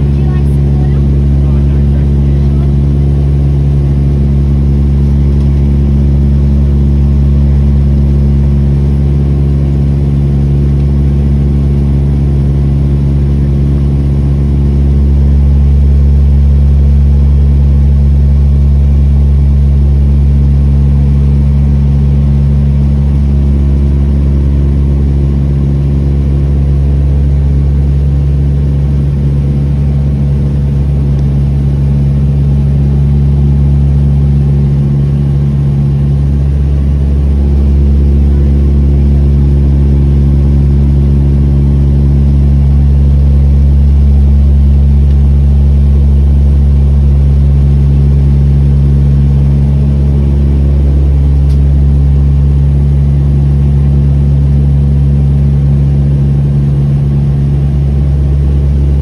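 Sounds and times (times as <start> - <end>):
propeller airliner cabin drone: 0.0 - 59.0.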